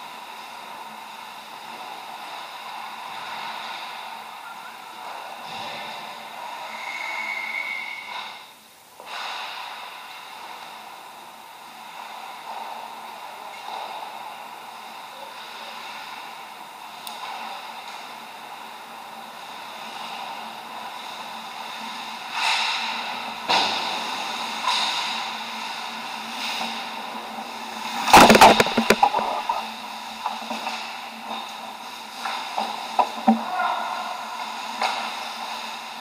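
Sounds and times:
sharp knocks: 28.1 - 29.6.

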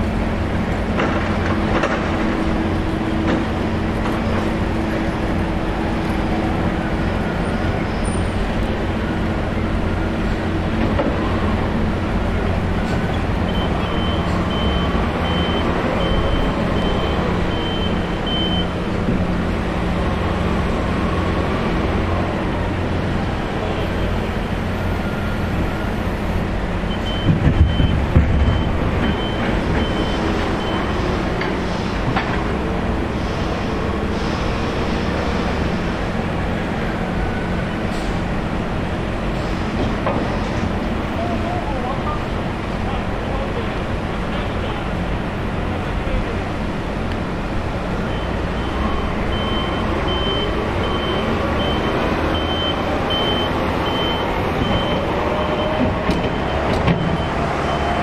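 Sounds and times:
vehicle rumble: 0.0 - 58.0
reversing alarm beeps: 13.5 - 18.8, 26.9 - 31.0, 48.0 - 58.0.

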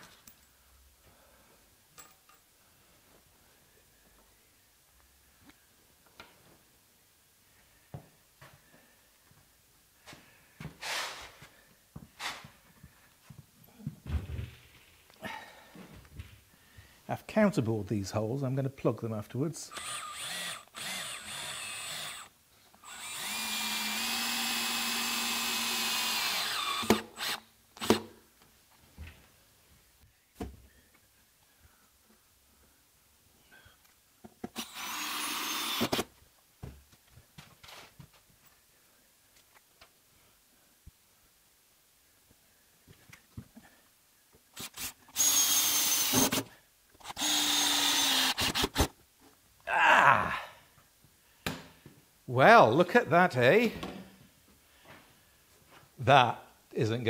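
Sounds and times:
drill trigger blips: 19.7 - 22.3, 44.6 - 46.4, 47.0 - 48.9
cordless drill driving screw: 19.7 - 28.1, 34.5 - 36.1, 44.6 - 48.9.

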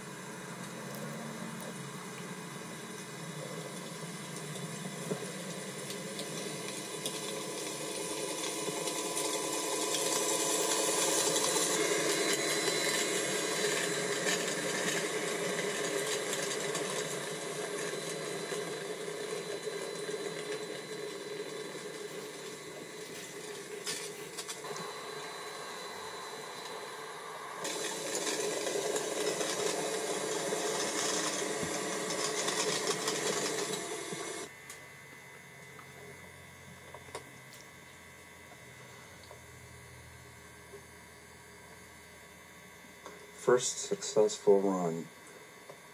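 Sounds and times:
faint hum: 0.0 - 45.9
small motor whir: 2.7 - 37.6.

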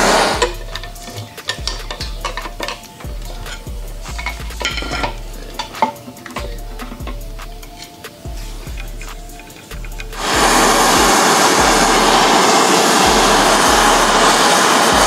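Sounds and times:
ringing metallic tones: 0.0 - 12.4
metal parts clicking and clinking: 0.4 - 10.2.

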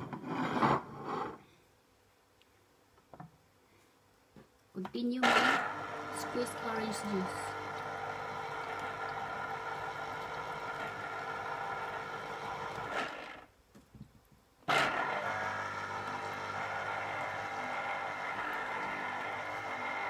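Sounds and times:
citrus juicer motor running: 5.2 - 13.4, 14.7 - 20.0.

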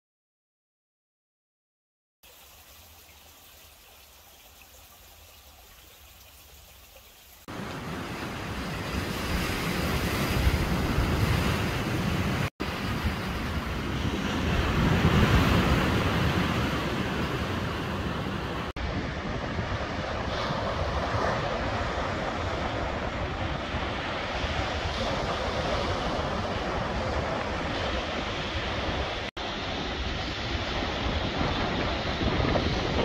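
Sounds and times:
ocean waves and surf: 7.4 - 33.0
wind rumbling on microphone: 7.5 - 33.0.

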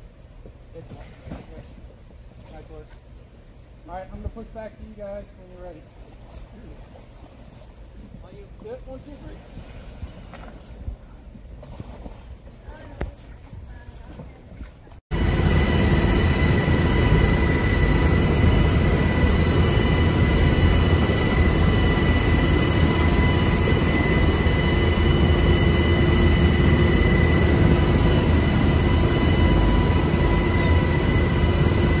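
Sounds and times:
helicopter turbine engines roaring: 15.1 - 32.0.

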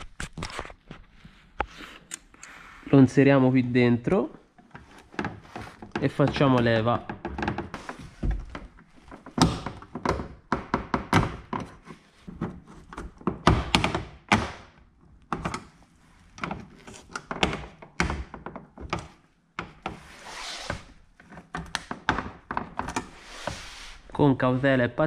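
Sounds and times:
plastic clicks taps and knocks: 4.6 - 14.6, 16.4 - 20.0, 21.2 - 23.0
short scrape: 23.1 - 24.1.

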